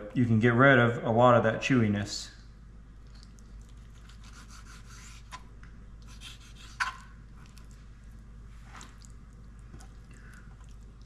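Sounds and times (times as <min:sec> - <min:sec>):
knife scraping on cutting board: 0:04.0 - 0:05.4, 0:06.1 - 0:07.1.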